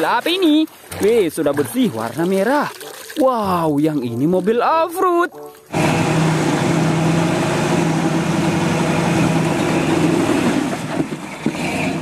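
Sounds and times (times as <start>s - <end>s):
off-road vehicle engine running: 5.7s - 12.0s.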